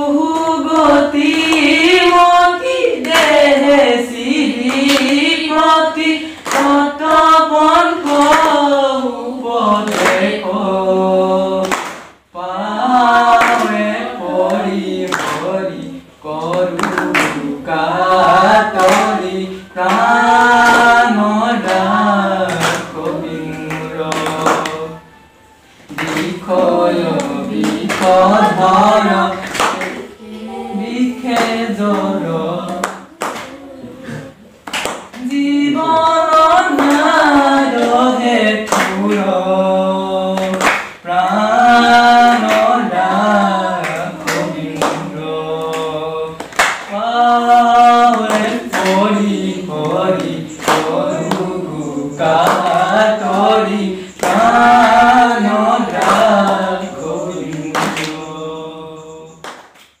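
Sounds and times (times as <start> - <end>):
group singing devotional song: 0.0 - 60.0
hand claps: 0.3 - 3.5, 4.6 - 5.4, 6.0 - 7.3, 7.9 - 8.7, 9.8 - 10.4, 11.6 - 12.2, 13.1 - 24.9, 25.9 - 30.1, 31.3 - 33.6, 34.6 - 35.4, 36.3 - 39.4, 40.4 - 43.0, 43.8 - 58.3, 59.4 - 60.0.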